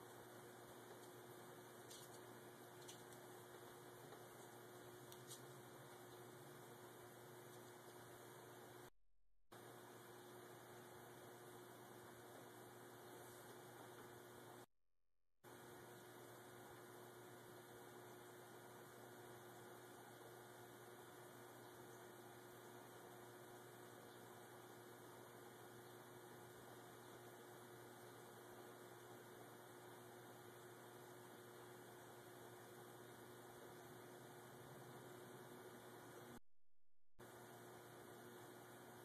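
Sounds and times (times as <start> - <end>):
low electrical hum: 0.0 - 8.9, 9.6 - 14.7, 15.5 - 36.4, 37.2 - 39.0.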